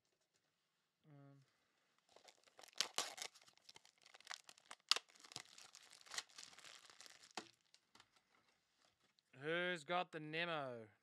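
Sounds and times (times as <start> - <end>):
plastic wrapping crinkling: 2.0 - 9.0.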